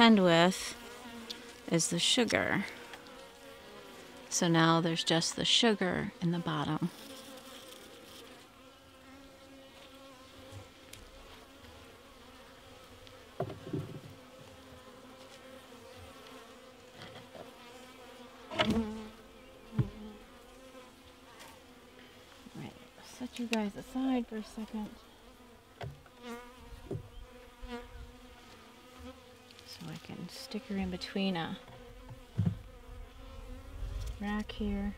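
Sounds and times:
bees buzzing: 0.0 - 34.9
knocks on wooden bee box: 13.4 - 14.2, 18.5 - 18.9, 19.7 - 20.0, 25.8 - 26.1, 26.8 - 27.2, 31.6 - 32.7.

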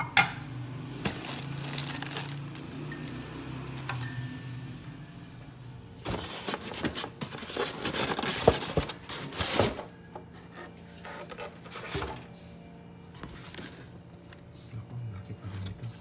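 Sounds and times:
styrofoam and cardboard scraping: 6.0 - 12.2.

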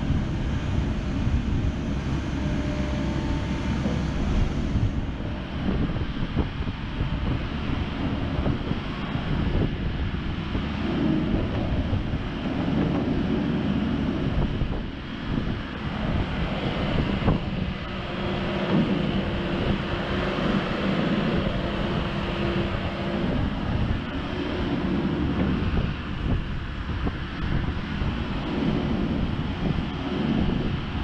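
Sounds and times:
excavator diesel engine: 0.0 - 31.0
hydraulics working: 0.0 - 31.0
wind buffeting microphone: 0.0 - 31.0.

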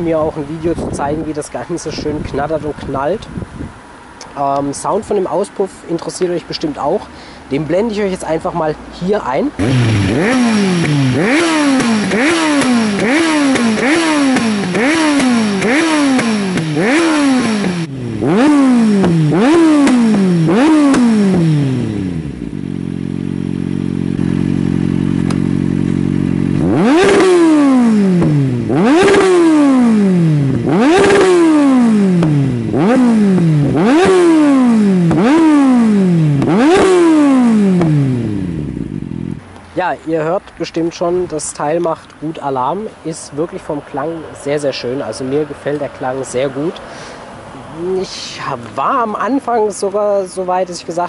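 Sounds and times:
motorcycle engine revving: 9.3 - 41.9, 42.6 - 50.6.

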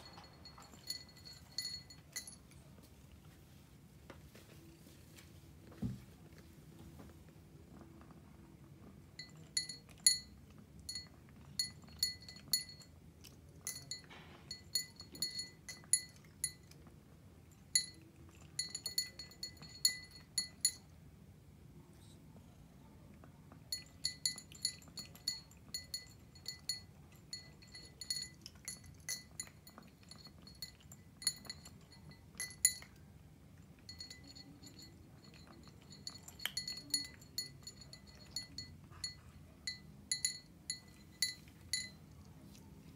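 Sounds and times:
kibble clinking in glass bowl: 0.0 - 2.6, 9.2 - 16.8, 17.6 - 20.9, 23.7 - 33.1, 33.7 - 42.2.

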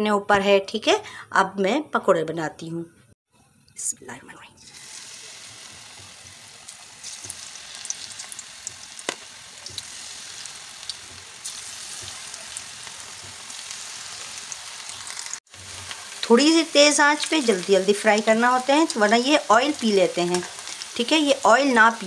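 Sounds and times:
fritters deep-frying in oil: 4.7 - 22.0.

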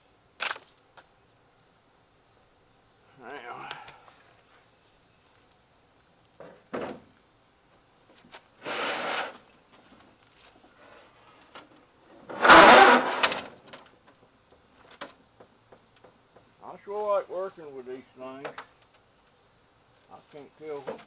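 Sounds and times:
plastic cabinet scraping on metal table: 8.6 - 9.4, 12.3 - 13.5.

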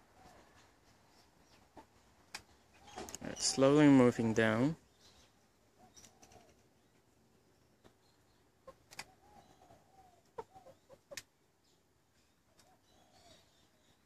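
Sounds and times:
sharp clicks: 8.9 - 9.1.

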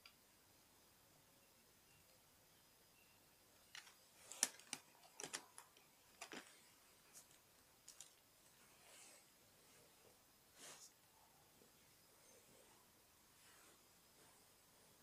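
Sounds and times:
plastic bricks clicking: 3.7 - 8.2.

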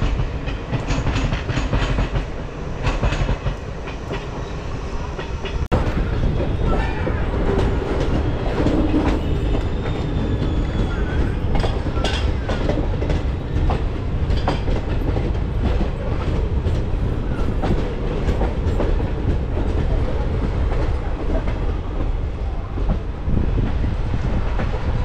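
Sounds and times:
train rumbling: 0.0 - 25.0
wheels clacking over rail joints: 5.2 - 23.7.

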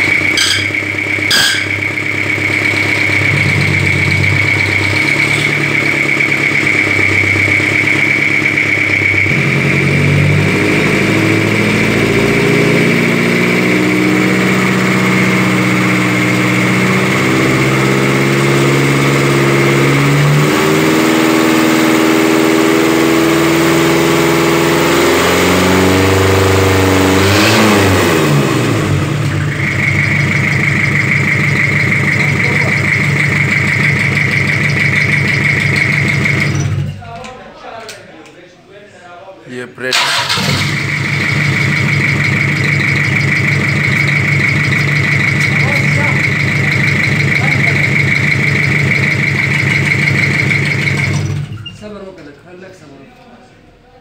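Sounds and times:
diesel engine idling and revving: 0.0 - 37.1, 39.5 - 52.1
person talking: 37.0 - 40.0.

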